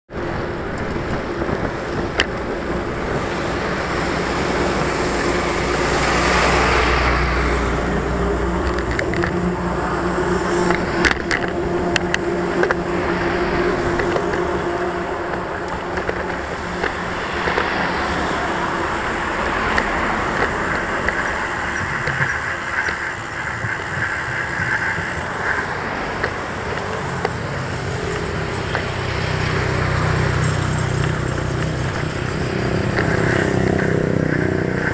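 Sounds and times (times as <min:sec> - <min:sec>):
bicycle road noise: 0:00.1 - 0:34.9
motor traffic passing: 0:00.1 - 0:34.9.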